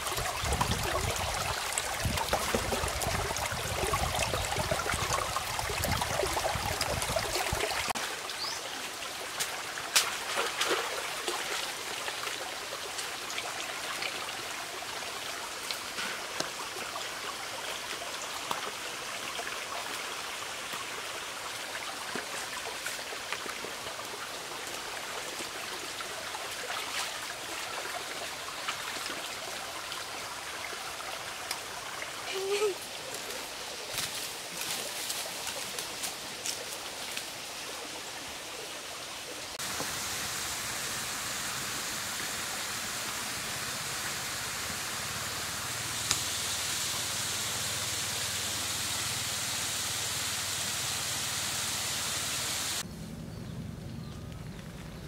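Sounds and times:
stream running over rocks: 0.0s - 52.9s.

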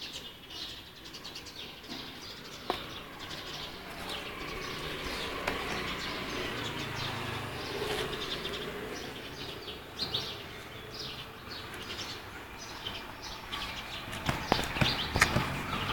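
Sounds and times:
outdoor background noise: 0.0s - 15.9s
small birds chirping: 0.0s - 15.9s.

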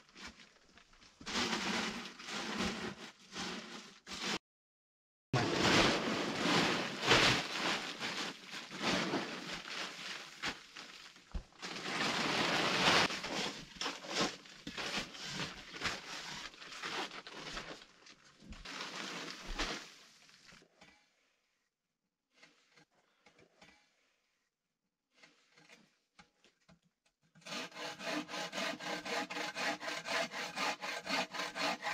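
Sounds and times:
plastic tarp rustling: 0.0s - 4.4s, 5.4s - 20.6s
hand tools scraping sandy soil: 5.4s - 17.1s, 27.7s - 31.9s.

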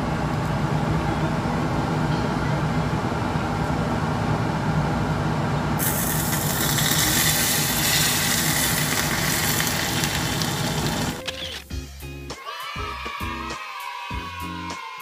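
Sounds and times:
hot liquid pouring: 5.8s - 11.2s
loud sizzling hiss: 5.8s - 11.2s.

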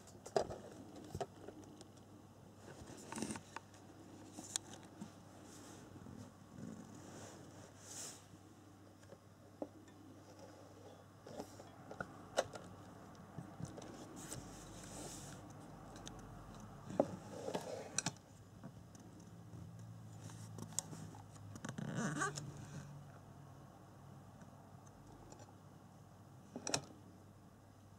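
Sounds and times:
soft handling clicks and rustles: 0.0s - 22.9s
soft rustling: 2.6s - 8.5s, 13.8s - 15.6s.

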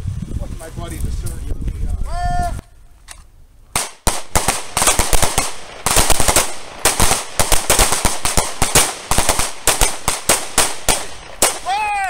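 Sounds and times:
pistol gunshots: 3.8s - 11.9s.

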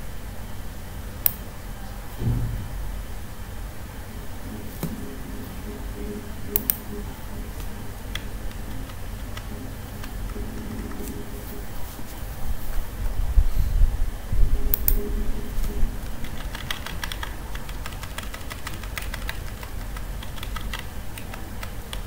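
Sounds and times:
steady low hum: 0.0s - 22.0s
soft low thump: 2.2s - 3.2s
computer mouse clicks: 6.6s - 6.8s, 14.7s - 15.0s.

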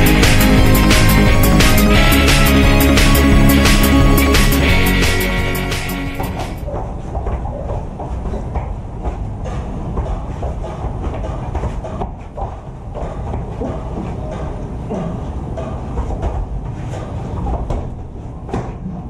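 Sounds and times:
music: 0.0s - 6.6s
steady low rumble: 0.0s - 17.4s
thuds and scuffles on foam mats: 6.2s - 14.2s.

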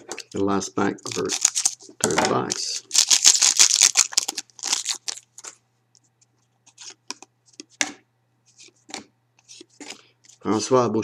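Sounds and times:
foil wrapper crinkling: 1.0s - 1.9s, 2.5s - 5.5s
cards scraping and clicking: 6.6s - 7.9s, 8.5s - 10.4s.

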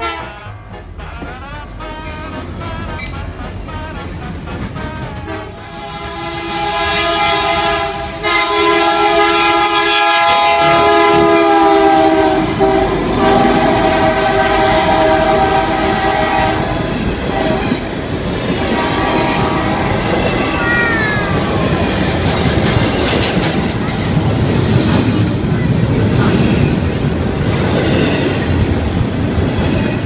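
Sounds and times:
locomotive air horn: 0.0s - 17.9s, 18.6s - 20.6s
train rumbling past: 0.0s - 30.0s.

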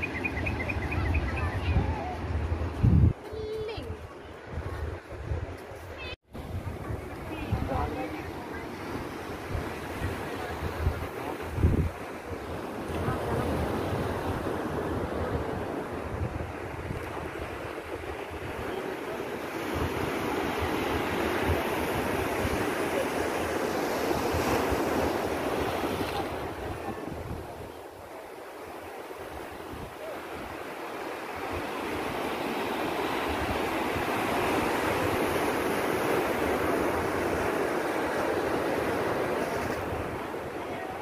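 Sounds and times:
wind buffeting microphone: 0.0s - 28.2s.

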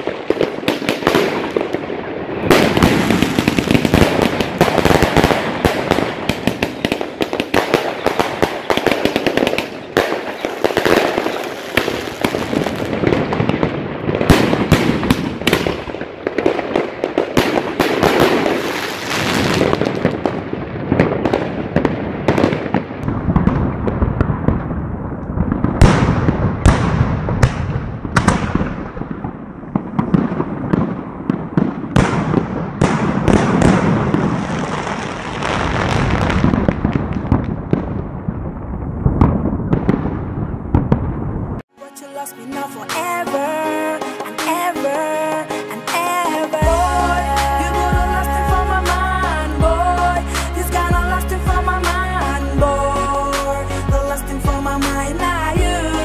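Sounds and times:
fireworks shots launching: 0.0s - 41.6s
fireworks shells bursting: 2.4s - 13.6s.

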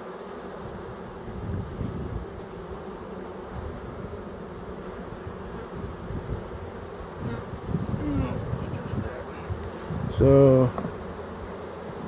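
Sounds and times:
honeybees buzzing: 0.0s - 12.0s.

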